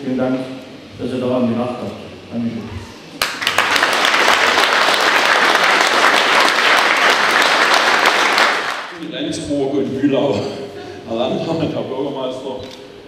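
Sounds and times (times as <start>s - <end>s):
audience applauding: 3.2s - 9.0s.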